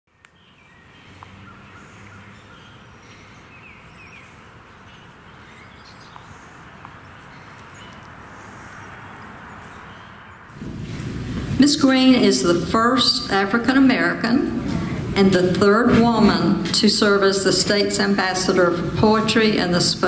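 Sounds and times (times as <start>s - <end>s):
steady background hiss: 0.2s - 20.0s.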